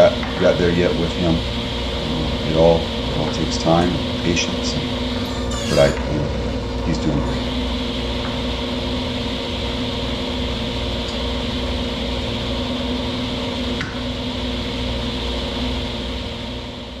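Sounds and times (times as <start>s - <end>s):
table saw running: 0.0s - 10.7s.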